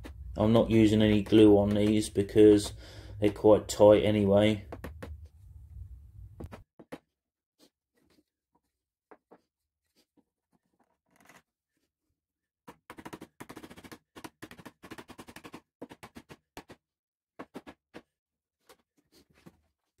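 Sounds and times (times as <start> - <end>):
mallet tapping plywood: 0.0 - 3.5.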